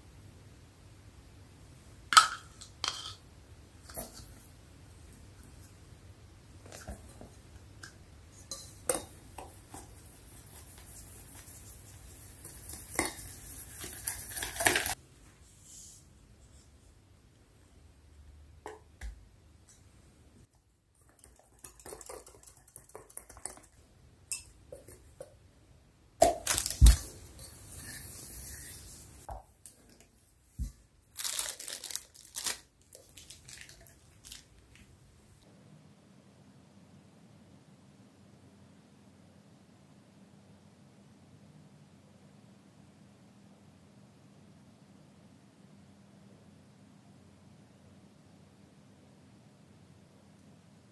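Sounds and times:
whisk scraping and rattling in bowl: 8.4s - 15.0s, 21.1s - 23.8s
plastic piping bag crinkling: 26.4s - 27.2s, 31.1s - 34.8s.

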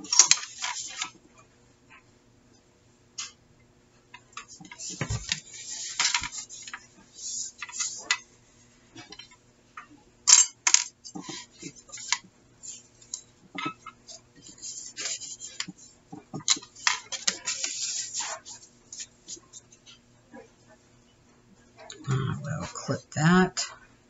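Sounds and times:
paper rustling and scraping: 0.0s - 1.2s, 4.4s - 9.1s, 11.1s - 19.7s.

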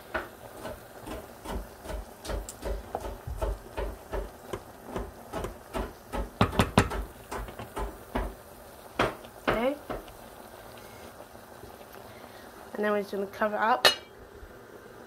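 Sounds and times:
kitchen utensils knocking: 13.8s - 14.1s.

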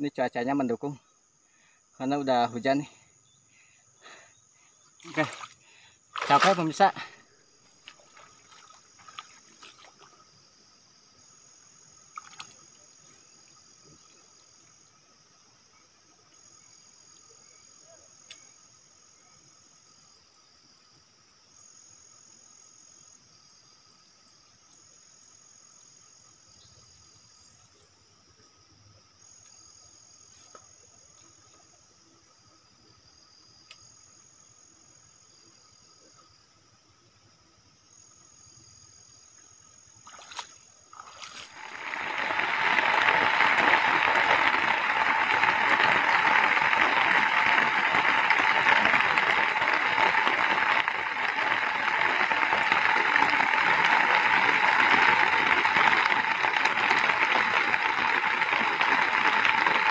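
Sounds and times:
insect chirring: 0.0s - 59.9s
heavy rain hissing: 41.4s - 59.9s.

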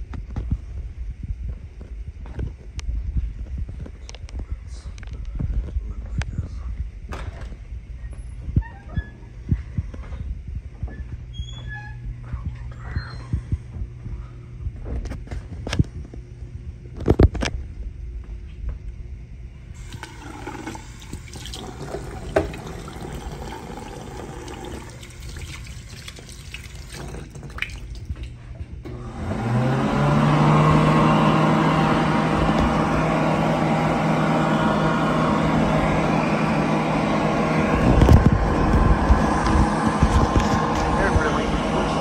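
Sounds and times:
hand dryer motor hum: 19.7s - 42.0s.

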